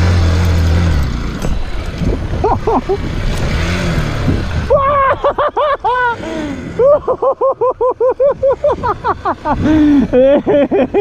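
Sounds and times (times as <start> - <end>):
wind and motor noise: 0.0 - 11.0
man laughing hard: 2.4 - 3.1, 4.6 - 11.0.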